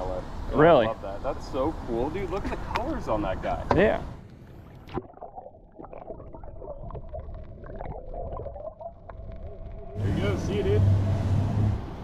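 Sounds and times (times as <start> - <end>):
underwater clicks and crackles: 4.2 - 10.0
underwater low hum: 4.2 - 12.0.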